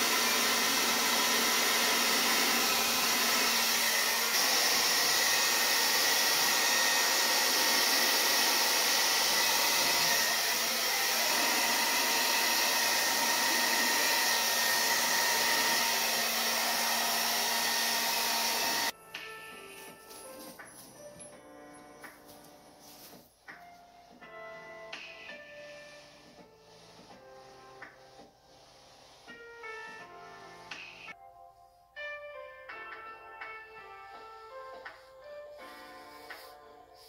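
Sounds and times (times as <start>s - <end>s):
hair dryer blowing: 0.0s - 19.0s.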